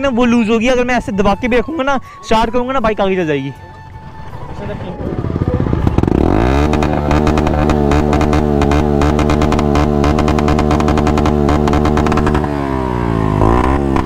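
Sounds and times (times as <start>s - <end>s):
motorcycle engine revving: 4.0s - 14.0s.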